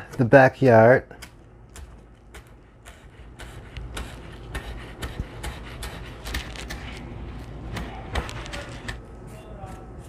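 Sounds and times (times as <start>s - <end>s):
knife chopping on cutting board: 1.2s - 7.0s, 7.7s - 9.0s.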